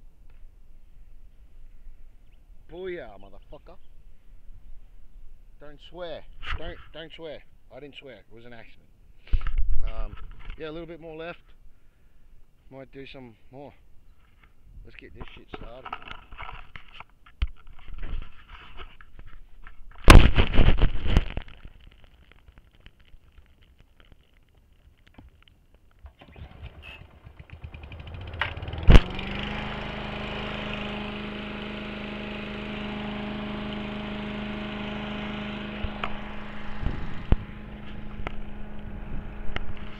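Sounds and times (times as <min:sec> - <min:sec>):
lawn mower engine running: 0:26.0 - 0:39.9
lawn mower pull-start: 0:26.0 - 0:39.9.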